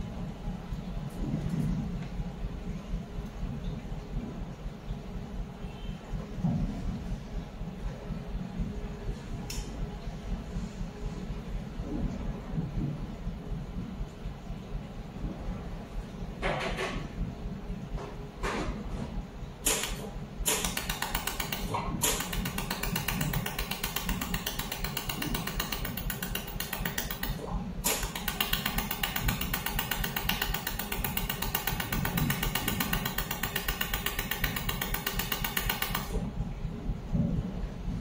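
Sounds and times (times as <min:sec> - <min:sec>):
low machine hum: 0:00.0 - 0:38.0
laser welder ticking: 0:19.6 - 0:36.2.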